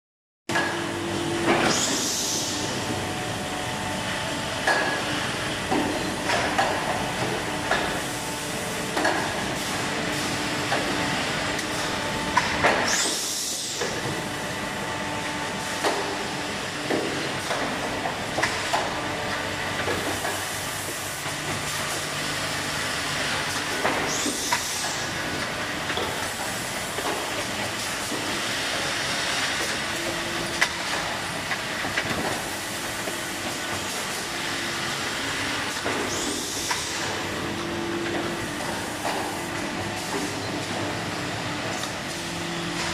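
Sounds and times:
pneumatic hisses: 1.6 - 2.6, 12.8 - 13.8, 24.0 - 25.1, 36.0 - 37.1.

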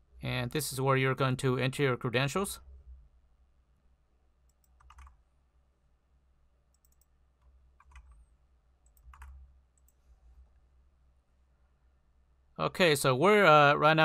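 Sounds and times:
faint keyboard typing: 4.4 - 5.3, 6.7 - 10.6.

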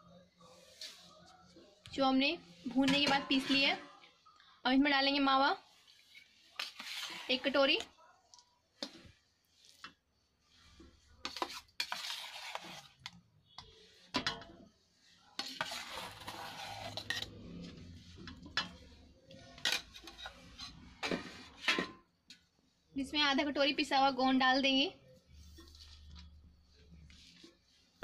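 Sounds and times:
spoon scraping a metal bowl: 2.7 - 4.0, 5.8 - 7.9, 8.8 - 21.9, 25.3 - 27.6.

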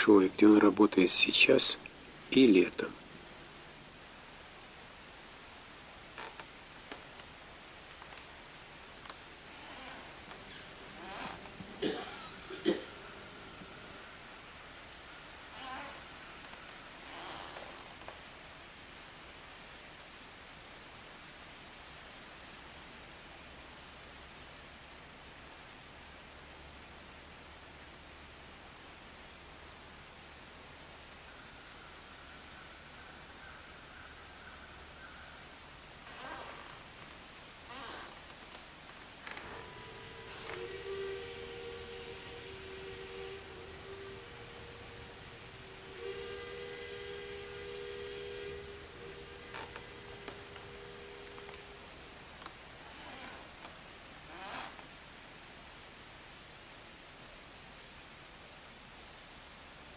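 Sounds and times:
low hiss: 0.0 - 59.9.

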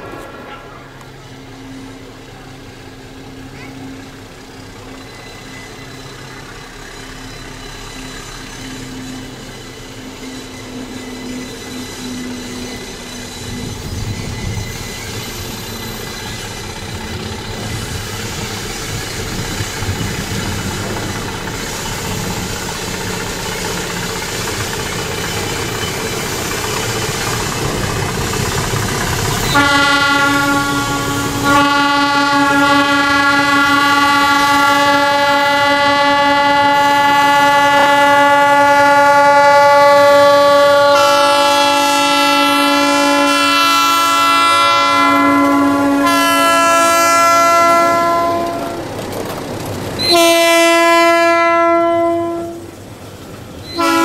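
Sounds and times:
diesel locomotive engine running: 0.0 - 54.0
locomotive horn blasts: 29.4 - 48.9, 50.0 - 52.8, 53.7 - 54.0.

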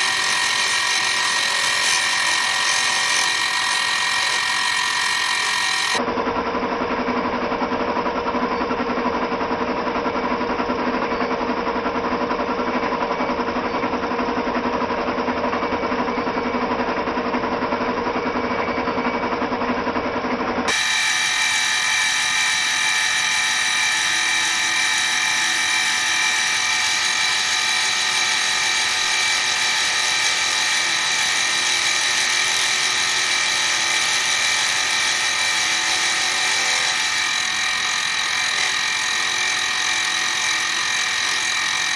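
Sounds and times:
milling machine whine: 0.0 - 6.1, 20.6 - 41.9.

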